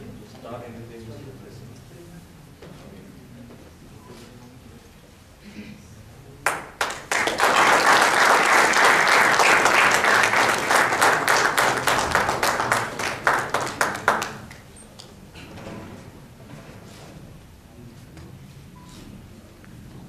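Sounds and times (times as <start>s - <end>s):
audience applauding: 6.4s - 14.7s.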